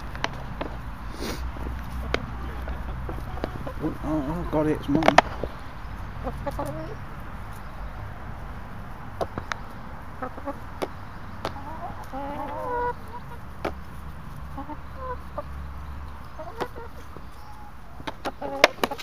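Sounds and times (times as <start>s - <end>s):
hens clucking: 0.0s - 19.0s
hen warbling calls: 2.3s - 5.0s, 5.6s - 7.2s.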